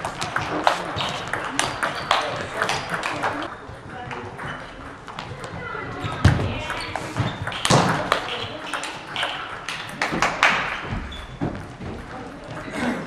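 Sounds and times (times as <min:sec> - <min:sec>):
table tennis balls clicking: 0:00.0 - 0:12.6.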